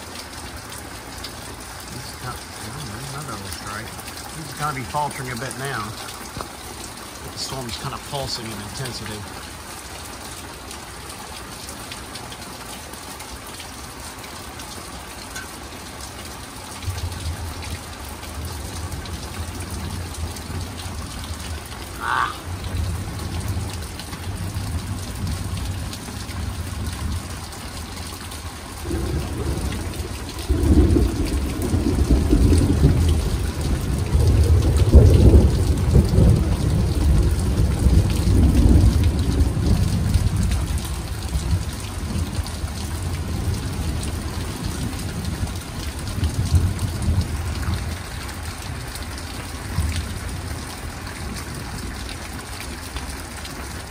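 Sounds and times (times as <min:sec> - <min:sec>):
rain falling: 0:00.0 - 0:53.9
thunder rumbling: 0:28.8 - 0:48.0.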